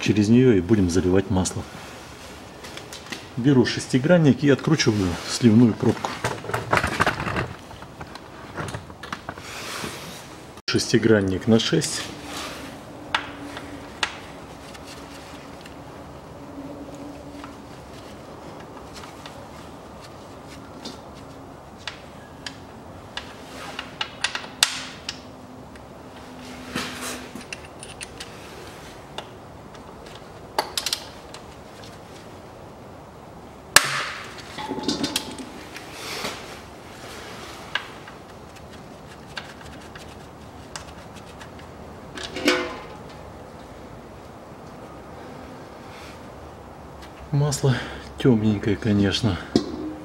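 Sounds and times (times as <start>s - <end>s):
metal clattering: 34.4s - 35.7s.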